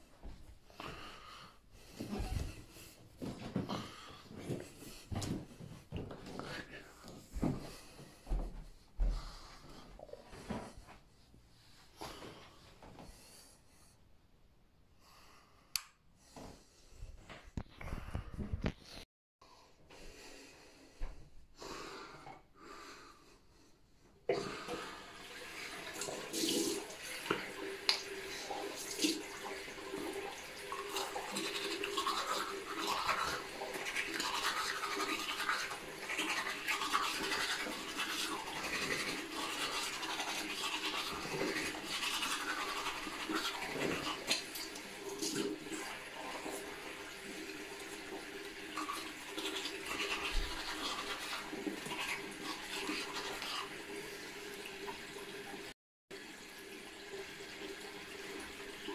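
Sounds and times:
toothbrush scrubbing teeth: 25.7s - 55.0s.

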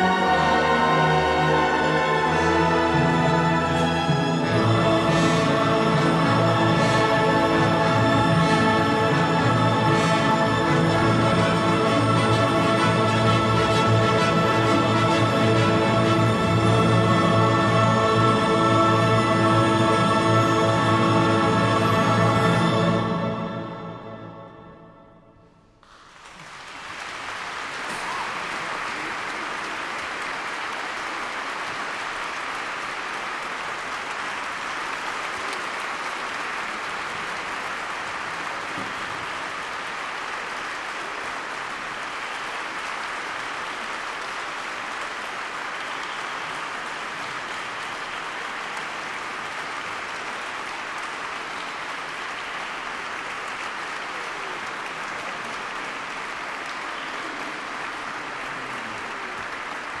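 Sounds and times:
audience applauding: 0.0s - 23.2s, 25.8s - 60.0s.

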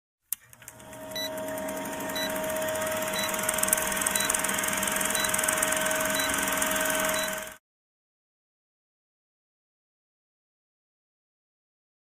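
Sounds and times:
projector whirring and clicking: 0.3s - 7.6s
steady tone: 0.9s - 7.6s.

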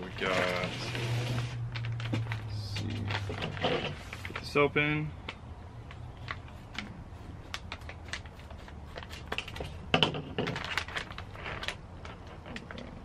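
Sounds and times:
foil bag crinkling: 0.0s - 4.6s, 6.2s - 13.0s
scissors cutting foil: 6.3s - 9.8s.

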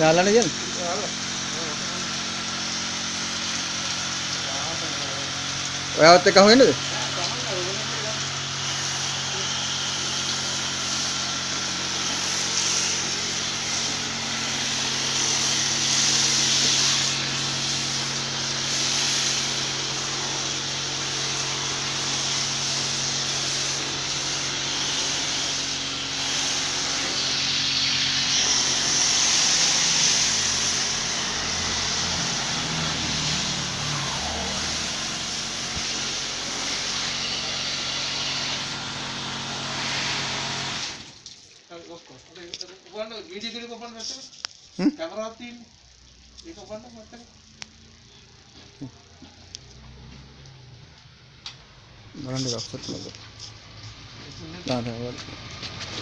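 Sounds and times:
pressure washer motor hum: 0.0s - 41.3s, 45.3s - 56.0s
water jet spraying: 0.0s - 41.9s.

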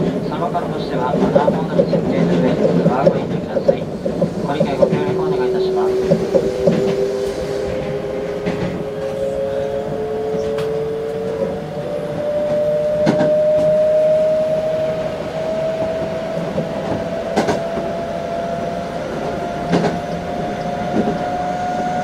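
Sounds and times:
train wheels rumbling: 0.0s - 22.0s
wheels clacking over rail joints: 1.0s - 9.2s
traction motors humming: 3.8s - 22.0s.

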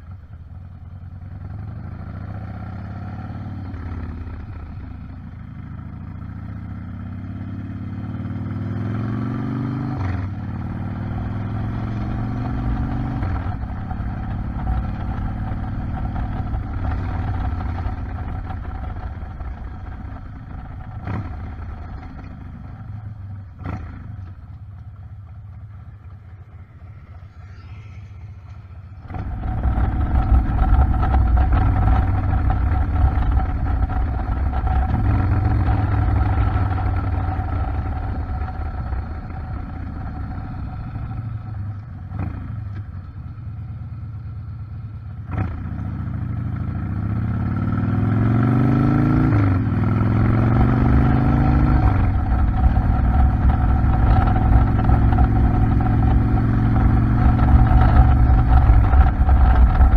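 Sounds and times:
motorcycle engine accelerating: 0.0s - 59.9s
wind rush: 25.4s - 39.5s, 51.6s - 59.9s.

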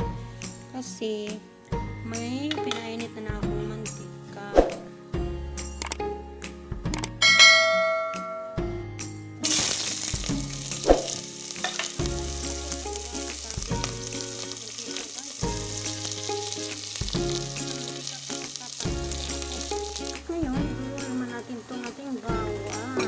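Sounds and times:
sharp click: 5.8s - 6.0s
onions sizzling in hot oil: 9.4s - 23.0s.

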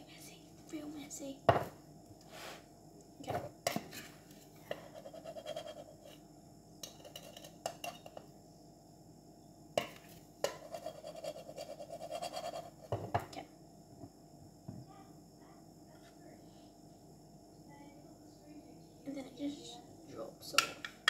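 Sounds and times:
spoon scraping: 3.7s - 6.2s, 6.8s - 8.1s, 10.4s - 12.9s
metal spoon clinking on glass: 6.8s - 8.2s.

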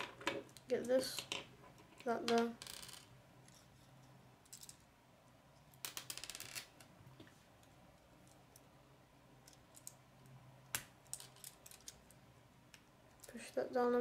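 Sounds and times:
plastic pieces clicking together: 9.4s - 10.0s, 10.8s - 13.4s.

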